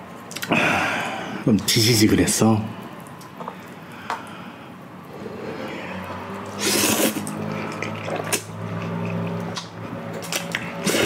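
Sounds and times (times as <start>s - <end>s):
noodle slurp: 5.1s - 11.0s
chewing: 6.4s - 11.0s.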